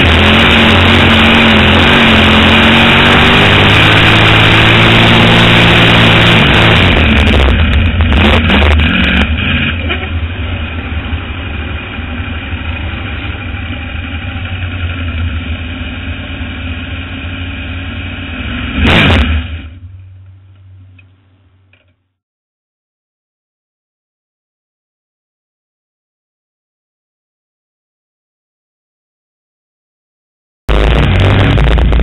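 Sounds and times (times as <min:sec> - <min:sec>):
loud rush: 0:00.0 - 0:09.5, 0:30.7 - 0:32.0
race car engine roaring: 0:00.0 - 0:21.9, 0:30.7 - 0:32.0.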